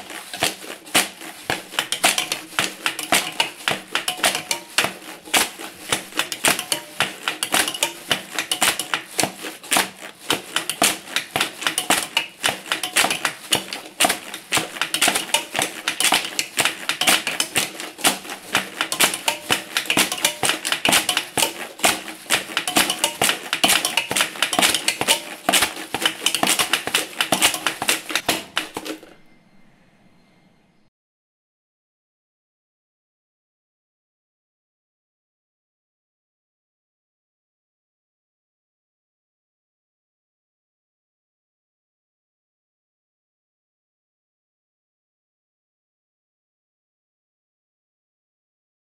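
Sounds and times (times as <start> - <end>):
plastic bags crumpling: 0.0 - 29.1
plastic bottles squeezed: 0.0 - 29.2.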